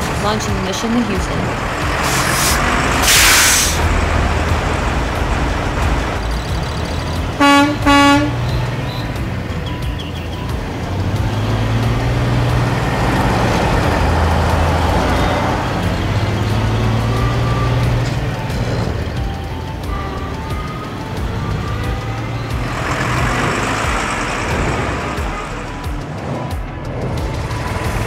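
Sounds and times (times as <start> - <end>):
diesel engine rumble: 0.0 - 28.0
air hiss: 2.0 - 3.8
truck horn toots: 6.5 - 25.9.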